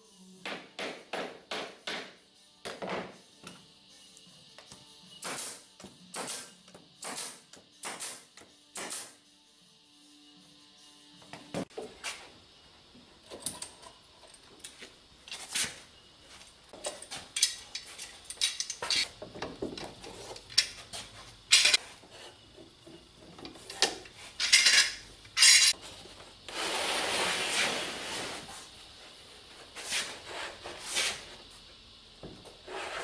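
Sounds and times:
metal clamps clanking and rattling: 13.3 - 14.8, 16.8 - 20.8, 21.5 - 21.8, 23.4 - 25.8.

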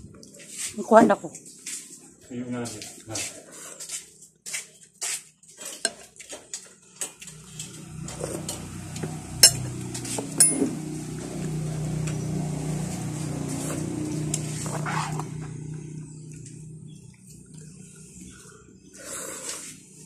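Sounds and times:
steady low hum: 7.4 - 19.2
spoon clinking against a dish: 9.4 - 9.6
eating noises: 11.0 - 20.0.

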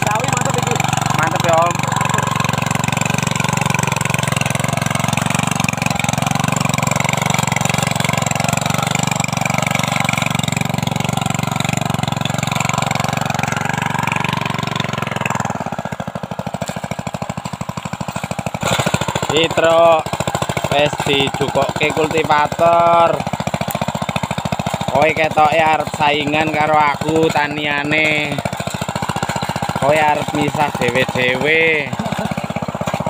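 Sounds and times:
small petrol engine running: 0.0 - 33.0
tines churning soil: 0.0 - 33.0.

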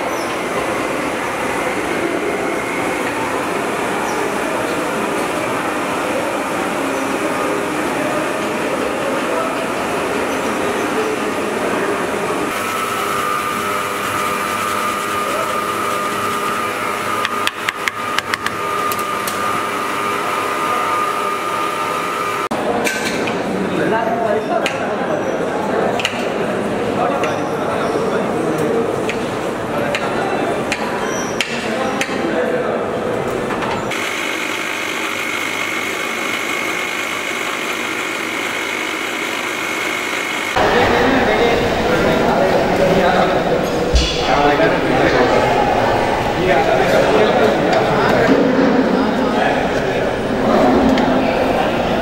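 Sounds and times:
steady background hum: 0.0 - 24.4, 40.5 - 52.0
mixer grinder motor whirring: 0.1 - 22.5, 33.9 - 40.6.

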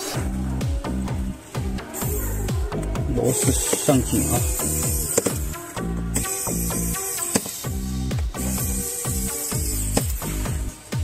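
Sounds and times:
electronic music: 0.0 - 11.0.

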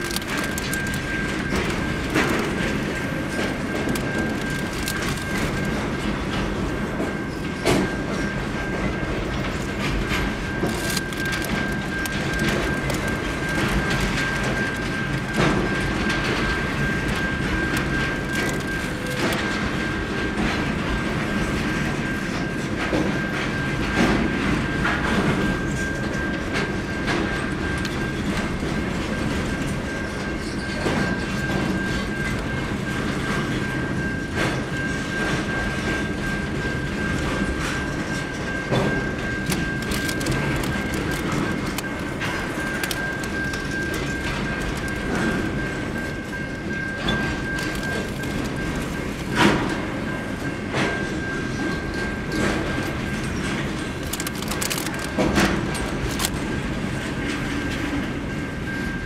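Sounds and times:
train wheels rumbling on rails: 0.0 - 59.0
wheel clicks and clacks: 0.0 - 59.0.

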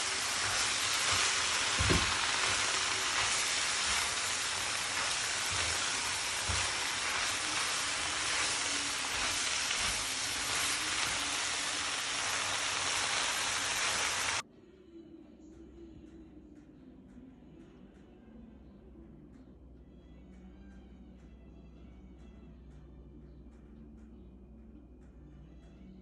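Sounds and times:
food sizzling in a wok: 0.0 - 14.4.

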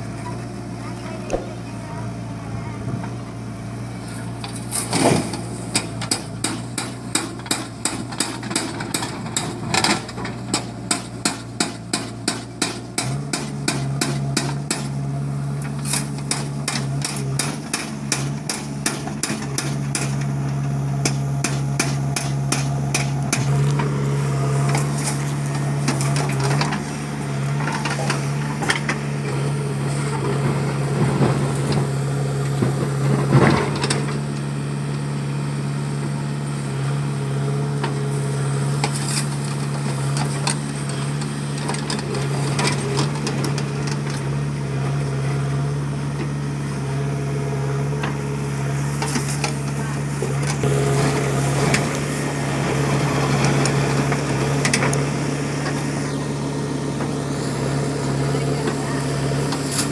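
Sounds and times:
diesel engine under load: 0.0 - 59.9
bucket and soil clatter: 57.0 - 59.9.

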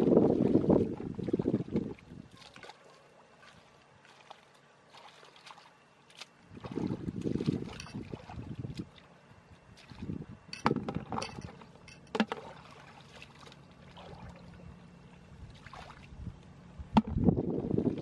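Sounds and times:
hands splashing in muddy puddle: 2.3 - 8.9.

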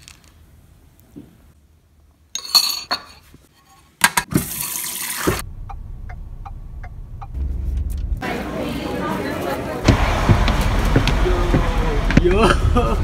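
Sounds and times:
car rumble: 5.4 - 13.0.

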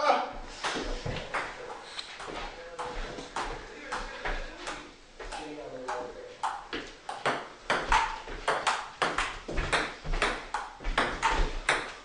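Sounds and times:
ping-pong ball hits: 0.7 - 1.6, 2.2 - 12.0.

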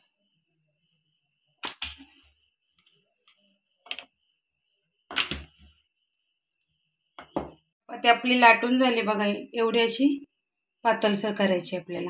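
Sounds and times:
rolling pin knocking on board: 7.2 - 7.6.

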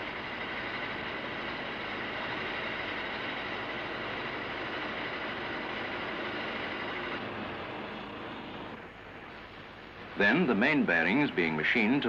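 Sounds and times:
grinding machine rushing: 0.0 - 8.8.

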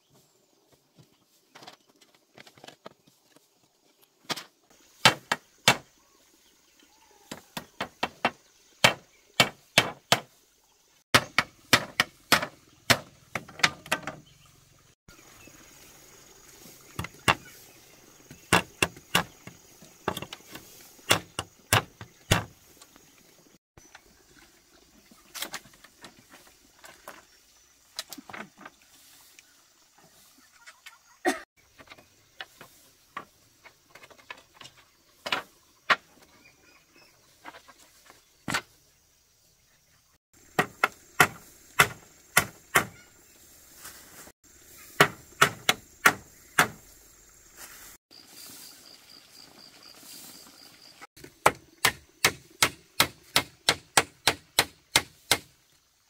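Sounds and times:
tool striking wood: 5.0 - 5.8, 7.3 - 10.3, 11.1 - 14.2, 17.0 - 17.5, 18.3 - 20.5, 21.1 - 22.5, 40.6 - 43.0, 45.0 - 46.8, 51.2 - 55.5.

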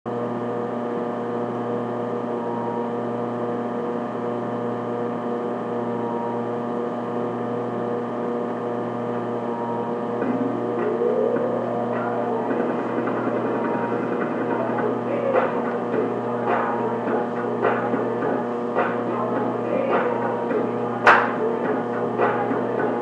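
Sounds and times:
steady multi-tone hum: 0.1 - 23.0
rising tone: 9.4 - 23.0.

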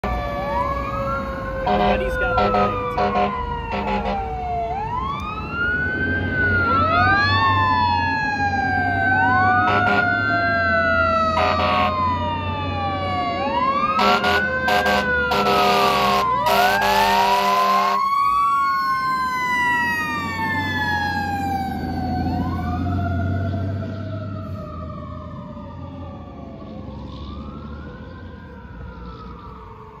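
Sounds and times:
fire engine siren wailing: 0.0 - 30.0
truck engine rumble: 0.0 - 30.0
horn blasts: 1.7 - 4.3, 9.6 - 10.2, 11.4 - 12.0, 14.0 - 18.0.

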